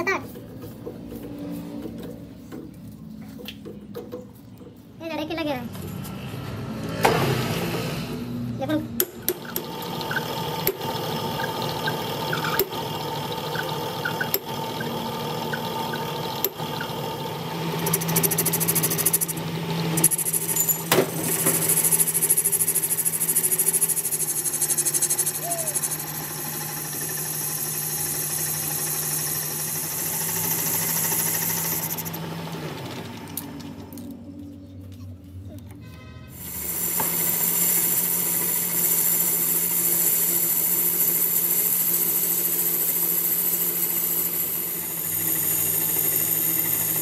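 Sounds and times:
metal lathe running: 0:09.3 - 0:33.6, 0:36.4 - 0:47.0.

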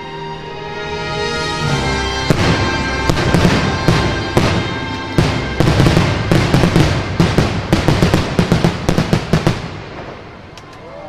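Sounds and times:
music: 0:00.0 - 0:10.8
fireworks bangs: 0:02.2 - 0:10.6.

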